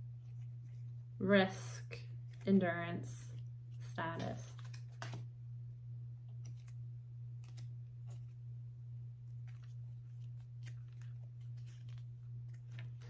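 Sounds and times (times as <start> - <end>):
steady low hum: 0.0 - 13.0
cards clicking on a table: 4.2 - 5.2.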